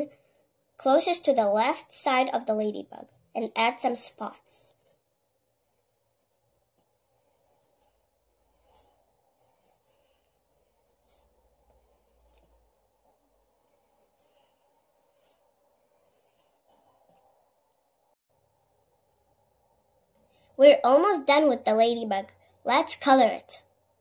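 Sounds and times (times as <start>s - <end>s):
pencil scratching on paper: 1.8s - 17.4s.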